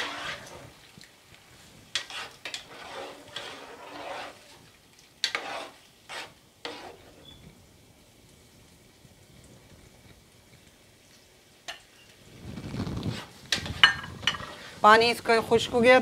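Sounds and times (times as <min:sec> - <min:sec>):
metal spoon scraping a pot: 0:00.0 - 0:00.7, 0:01.9 - 0:04.6, 0:05.2 - 0:07.4
meat sizzling: 0:00.0 - 0:15.0.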